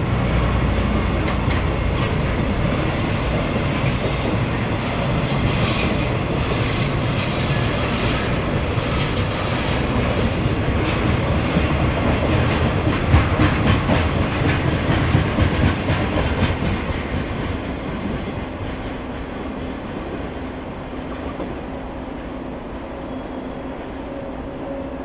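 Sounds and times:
freight train rumble: 0:00.0 - 0:25.0
train wheels clicking over rail joints: 0:00.9 - 0:21.6.

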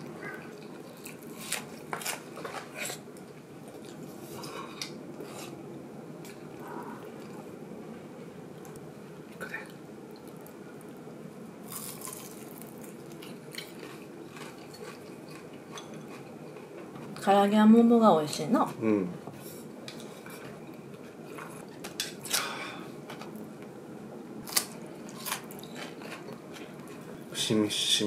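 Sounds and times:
low room hum: 0:00.0 - 0:28.0
chewing: 0:11.7 - 0:17.2, 0:24.5 - 0:27.1.

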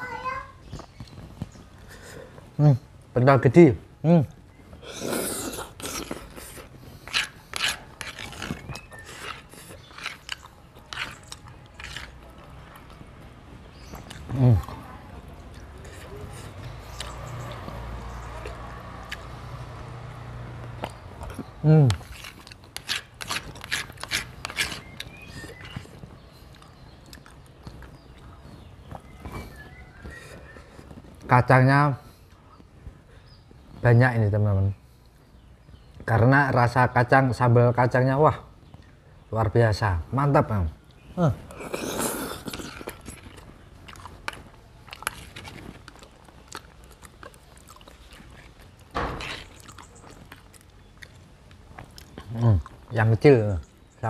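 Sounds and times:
chewing and lip-smacking: 0:04.8 - 0:31.3, 0:40.9 - 0:53.0.

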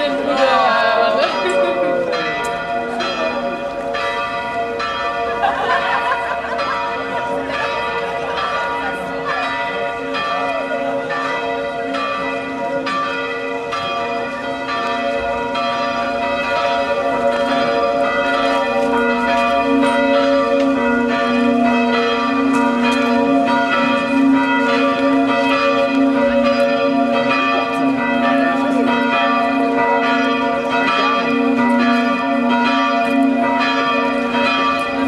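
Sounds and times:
church bells pealing: 0:00.0 - 0:35.0.

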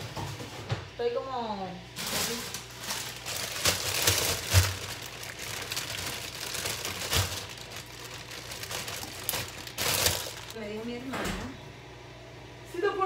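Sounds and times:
plastic bag crinkling: 0:01.9 - 0:10.6.

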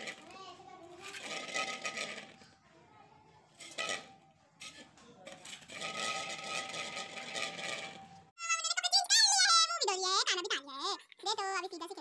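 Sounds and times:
metallic clatter and scraping: 0:00.0 - 0:02.6, 0:03.5 - 0:08.3.

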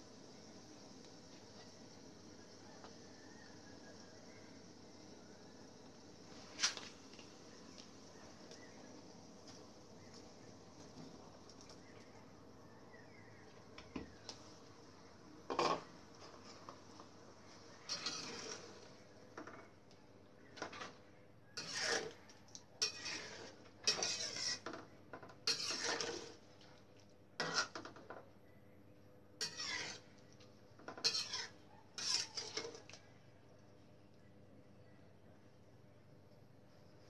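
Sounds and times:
metal spatula scraping a wok: 0:17.7 - 0:18.9, 0:21.6 - 0:24.8, 0:25.4 - 0:26.5, 0:27.4 - 0:27.9, 0:29.4 - 0:30.2, 0:31.0 - 0:33.0.

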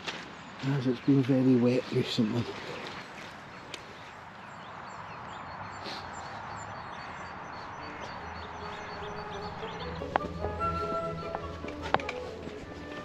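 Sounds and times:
steady outdoor hiss: 0:00.0 - 0:13.0
high bird chirps: 0:03.0 - 0:12.1.

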